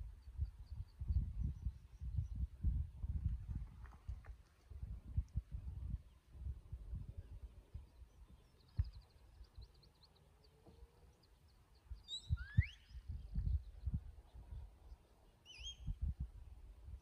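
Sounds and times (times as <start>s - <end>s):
wind buffeting microphone: 0.0s - 9.7s, 11.9s - 14.9s, 15.6s - 17.0s
high bird chirps: 11.2s - 13.9s, 15.4s - 16.0s.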